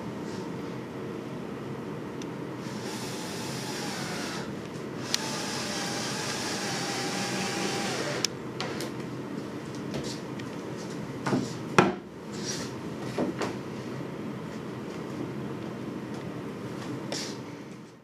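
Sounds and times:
cordless drill driving screw: 0:02.7 - 0:08.3
drill clutch click: 0:05.1 - 0:05.3.

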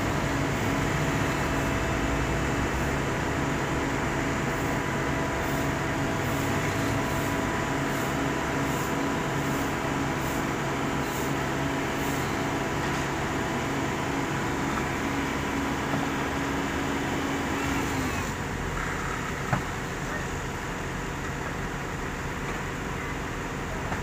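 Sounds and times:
diesel engines idling: 0:00.0 - 0:24.0.

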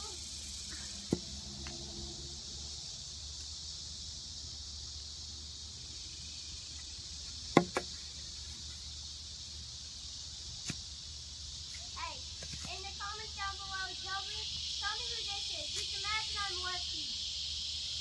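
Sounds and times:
insects droning: 0:00.0 - 0:18.0
sharp knocks: 0:07.5 - 0:07.9.

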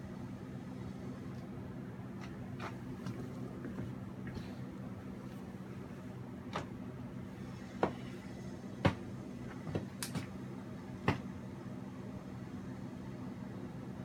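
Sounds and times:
steady low hum: 0:00.0 - 0:14.0
sharp taps and knocks: 0:08.8 - 0:10.3, 0:11.1 - 0:11.3.

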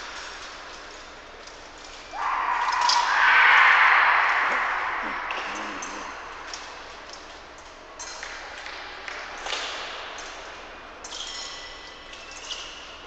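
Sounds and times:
fencing blades clinking: 0:09.4 - 0:13.0.

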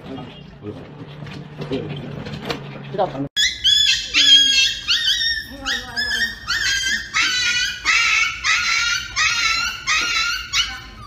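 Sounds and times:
small dog yelping: 0:03.4 - 0:11.0.

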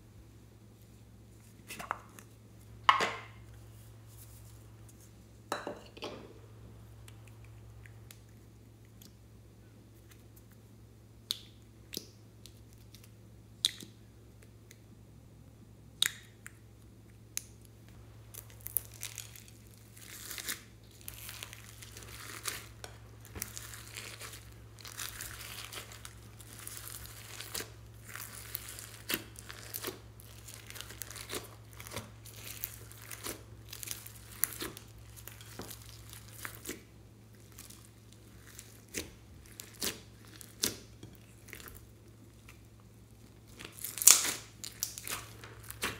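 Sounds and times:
faint low hum: 0:00.0 - 0:45.9
slime beads crackling: 0:18.2 - 0:42.6, 0:43.2 - 0:45.9.

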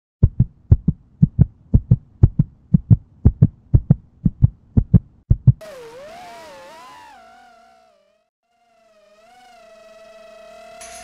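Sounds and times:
heartbeat thumps: 0:00.2 - 0:05.6.

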